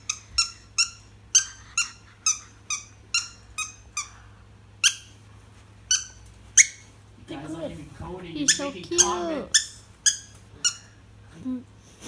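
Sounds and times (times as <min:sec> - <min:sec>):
squeaky dog toy squeaking: 0:00.0 - 0:04.1, 0:04.8 - 0:05.1, 0:05.9 - 0:06.9, 0:08.4 - 0:11.0.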